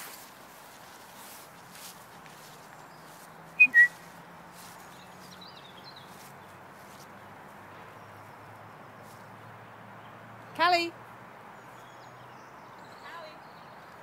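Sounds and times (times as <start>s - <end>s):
faint bird chirps: 3.0s - 4.1s
short loud whistled notes: 3.6s - 4.0s.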